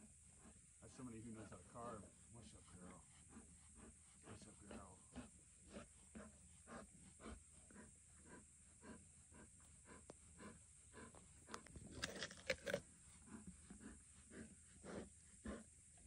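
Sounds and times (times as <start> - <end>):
lioness panting: 0.0 - 16.0
teeth crunching watermelon rind: 11.5 - 12.8.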